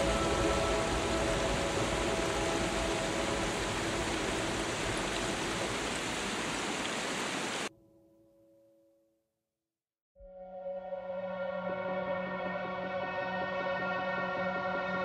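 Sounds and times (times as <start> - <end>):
faint sustained music tones: 0.0 - 6.3, 10.2 - 15.0
rushing water: 0.0 - 7.7.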